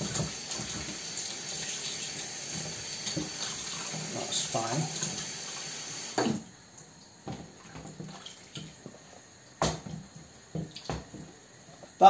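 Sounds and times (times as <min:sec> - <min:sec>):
kitchen tap running into sink: 0:00.0 - 0:06.5
water splashes and drips: 0:07.3 - 0:08.8.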